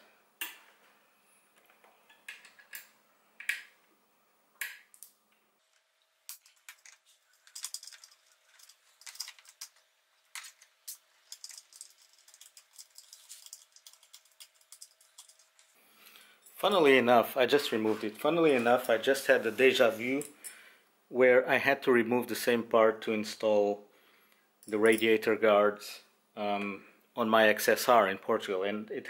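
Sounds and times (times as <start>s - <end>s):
small metallic clicks and rattles: 6.3s - 15.8s.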